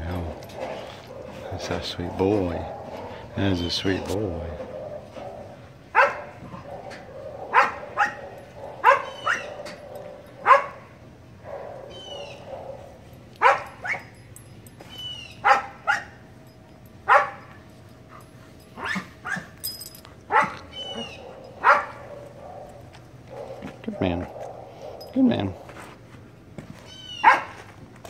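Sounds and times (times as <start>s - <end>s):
dog barking: 4.6s - 14.1s, 15.4s - 16.2s, 17.1s - 17.5s, 18.8s - 19.6s, 20.3s - 25.2s, 27.2s - 27.6s.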